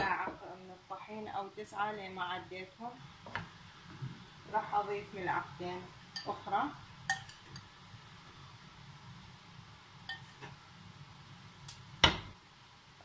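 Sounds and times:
metal spoon clinking on glass bowl: 7.1s - 7.6s, 10.1s - 10.4s.

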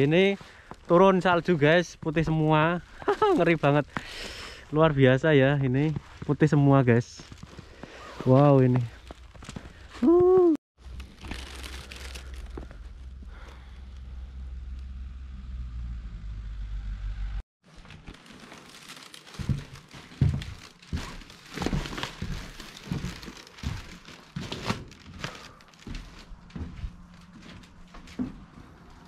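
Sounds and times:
footsteps crunching on snow: 0.0s - 13.1s, 17.7s - 29.0s
low steady rumble: 10.8s - 17.4s.

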